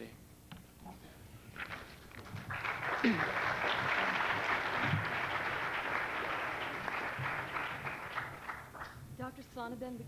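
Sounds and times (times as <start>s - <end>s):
audience applause: 1.7s - 9.0s.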